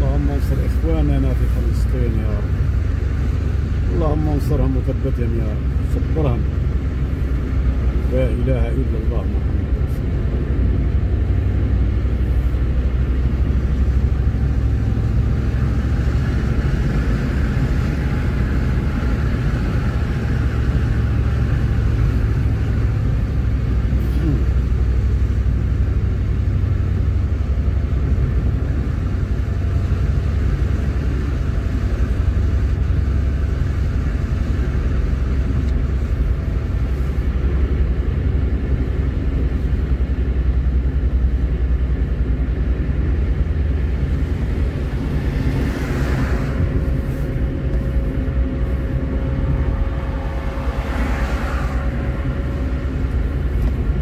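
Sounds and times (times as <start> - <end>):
car engine and road rumble: 0.0 - 54.0
vehicle passing by: 43.8 - 54.0.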